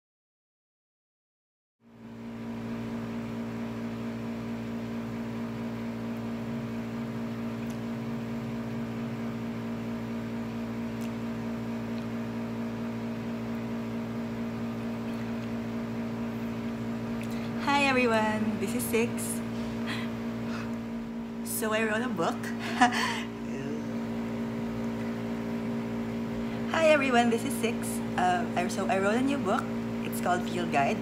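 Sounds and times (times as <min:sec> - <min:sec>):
steady electrical drone: 0:14.4 - 0:31.0.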